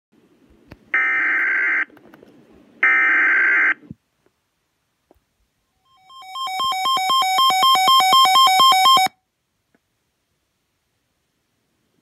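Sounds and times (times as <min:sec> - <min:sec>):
faint static hiss: 0:00.2 - 0:12.0
digital alert tones buzzing: 0:05.9 - 0:09.1.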